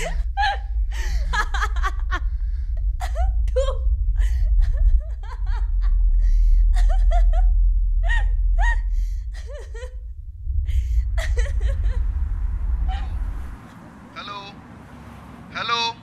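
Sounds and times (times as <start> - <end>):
person laughing wildly: 0.0 - 2.3, 3.0 - 10.0, 11.2 - 12.2
low rumble: 0.0 - 15.9.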